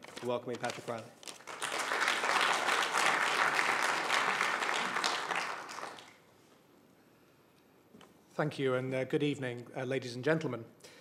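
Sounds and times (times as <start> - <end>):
audience applauding: 1.3 - 6.2.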